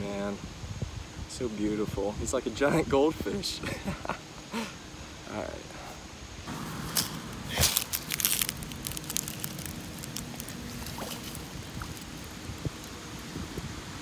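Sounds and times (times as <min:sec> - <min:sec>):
water splashing: 0:06.5 - 0:14.0
small water drips: 0:07.7 - 0:13.6.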